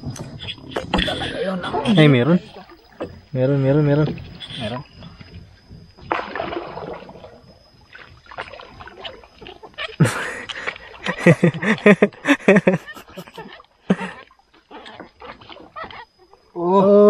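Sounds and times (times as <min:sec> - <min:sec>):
man laughing: 0:00.4 - 0:02.5, 0:10.0 - 0:14.2.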